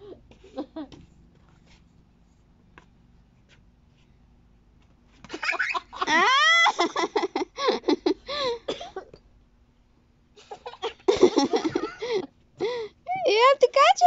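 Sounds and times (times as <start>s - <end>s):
person laughing: 0.4s - 1.0s, 5.4s - 8.6s, 10.4s - 12.8s.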